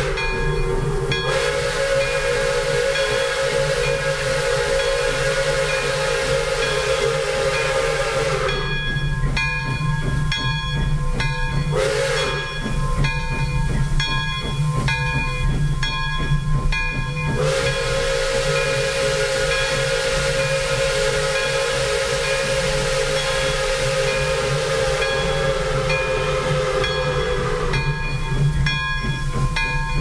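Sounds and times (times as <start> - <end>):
steam whistle blasts: 0.0 - 8.9, 11.7 - 12.7, 17.3 - 28.5.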